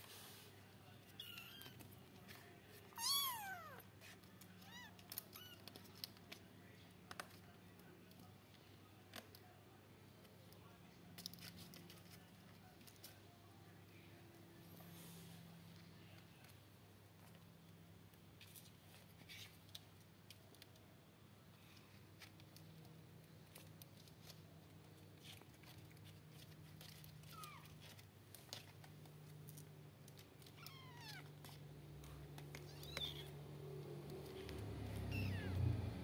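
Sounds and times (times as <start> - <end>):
kittens mewing: 2.9 - 3.9, 34.9 - 35.8.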